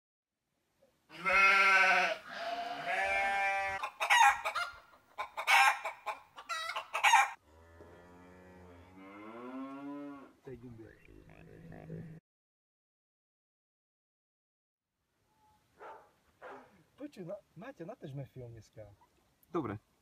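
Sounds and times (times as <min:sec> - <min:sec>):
rooster crowing: 0:02.0 - 0:04.7, 0:05.4 - 0:05.9, 0:06.5 - 0:07.4
sharp clucking calls: 0:03.7 - 0:07.4.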